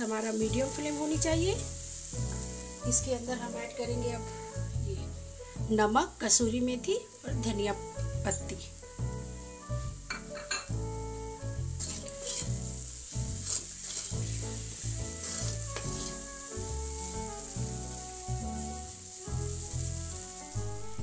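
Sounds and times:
background music: 0.0 - 21.0
stuffing sizzling in oil: 0.0 - 21.0
wooden spatula scraping: 11.6 - 18.7.

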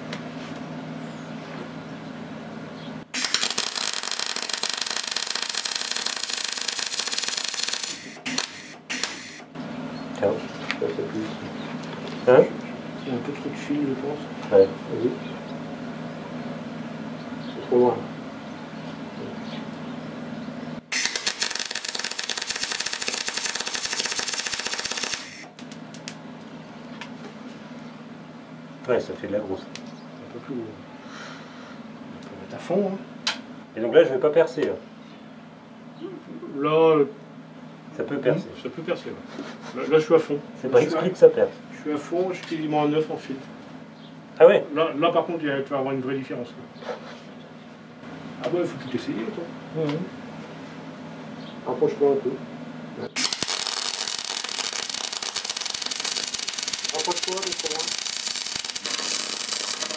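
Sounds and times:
welding arc crackling: 3.1 - 9.6, 20.9 - 26.2, 53.2 - 59.9.

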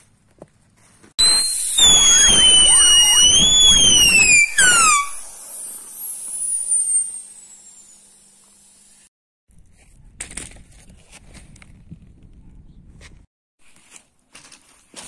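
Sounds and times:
whistle falling in pitch: 1.2 - 5.3, 6.2 - 7.3
faint high whistle sliding down: 1.2 - 8.8.

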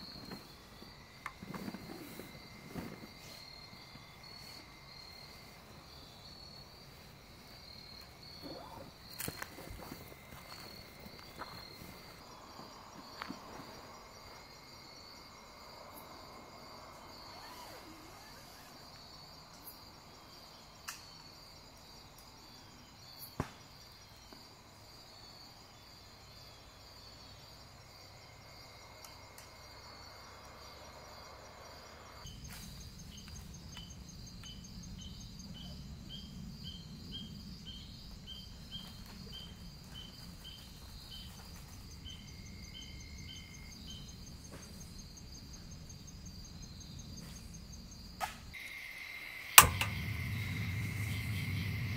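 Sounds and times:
crickets trilling: 0.0 - 51.9
insect chirping: 0.0 - 51.9
sharp clicks: 49.6 - 51.4
low rumble: 49.7 - 51.9.

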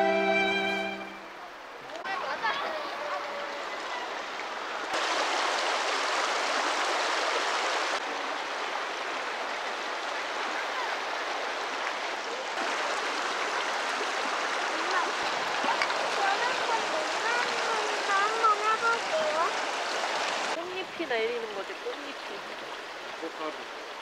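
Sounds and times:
water rushing over stones: 2.0 - 24.0.

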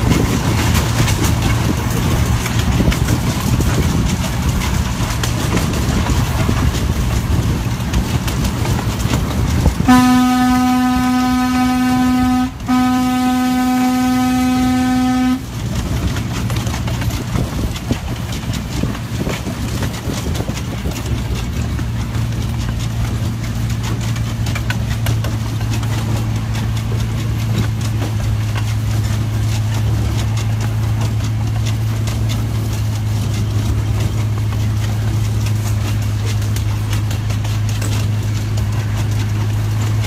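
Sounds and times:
miniature train rumbling: 0.0 - 40.0
train horn low blasts: 9.8 - 16.1.

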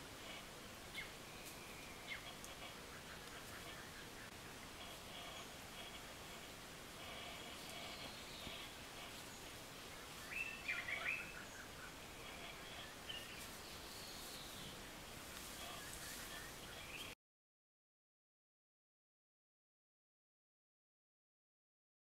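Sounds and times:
steady background hiss: 0.0 - 17.2
bird chirps: 10.2 - 14.7.

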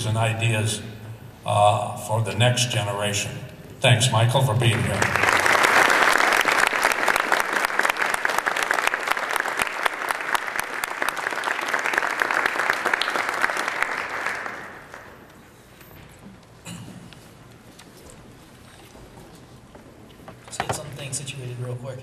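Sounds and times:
audience applauding: 4.6 - 15.4.

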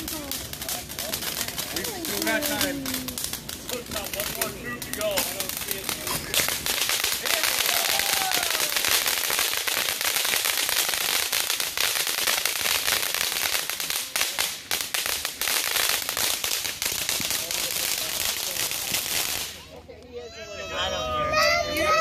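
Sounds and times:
fountain firework crackling: 0.0 - 22.0.

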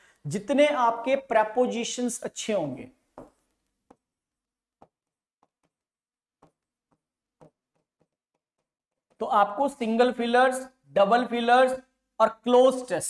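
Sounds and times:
marker pen ticking on whiteboard: 4.8 - 9.2.

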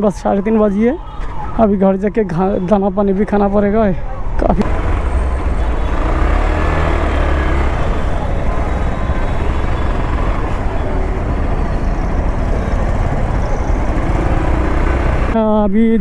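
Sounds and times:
city traffic: 0.0 - 16.0
motorcycle engine rumbling: 4.5 - 15.6.

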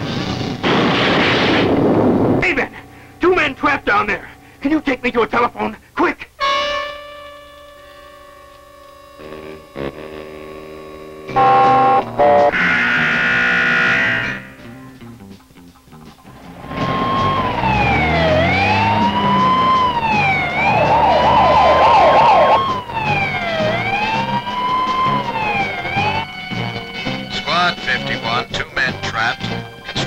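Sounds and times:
music with loud held tones: 2.0 - 30.0
fire engine siren wailing: 6.4 - 9.6, 11.3 - 14.6, 16.4 - 27.3
siren yelping: 11.3 - 14.6, 16.4 - 26.9.

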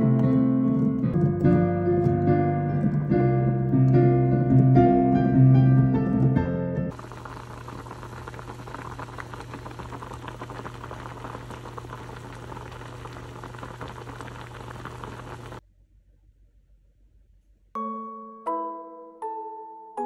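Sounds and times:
liquid boiling and bubbling: 6.9 - 15.6.

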